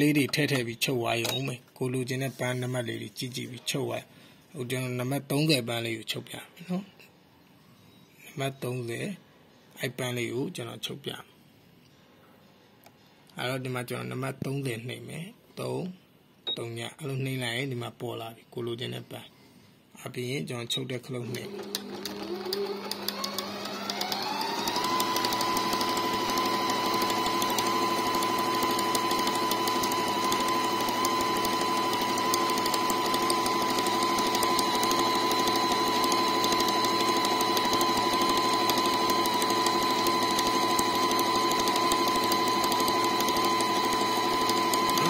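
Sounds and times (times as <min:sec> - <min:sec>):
sewing machine motor whine: 0:21.3 - 0:45.0.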